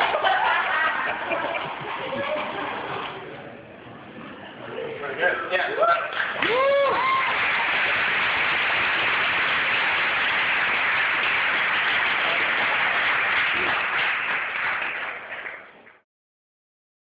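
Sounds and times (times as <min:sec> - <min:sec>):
audience applauding: 0:00.0 - 0:00.9, 0:06.0 - 0:16.0.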